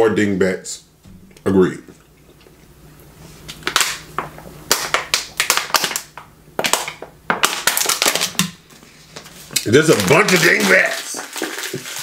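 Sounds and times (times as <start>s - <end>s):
plastic bottle crinkling: 4.7s - 12.0s.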